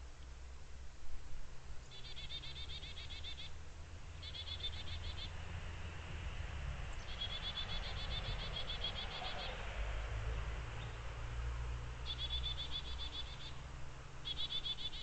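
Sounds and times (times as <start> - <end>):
small bird trilling: 1.9 - 3.5, 4.2 - 5.3, 7.0 - 9.6, 12.1 - 13.6, 14.2 - 15.0.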